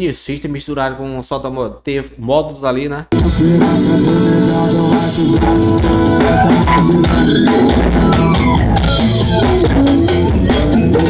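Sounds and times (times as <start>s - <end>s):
loud music with drums and bass: 3.1s - 11.0s.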